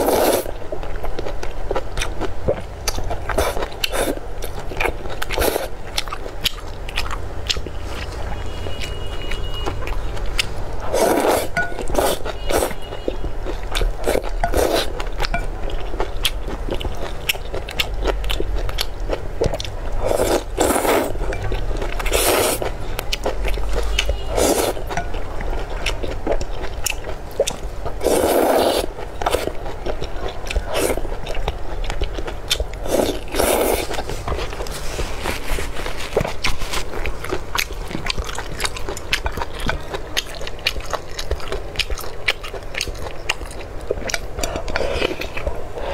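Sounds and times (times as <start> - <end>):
person slurping noodles: 0.0 - 0.5, 10.8 - 12.8, 14.0 - 14.9, 20.0 - 21.3, 22.0 - 22.7, 24.3 - 24.8, 28.0 - 29.5, 32.8 - 36.2, 44.4 - 45.9
wet chewing: 0.0 - 45.9.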